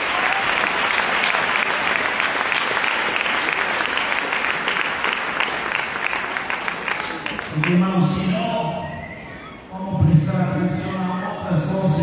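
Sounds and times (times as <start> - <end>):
crowd applauding: 0.0 - 7.9.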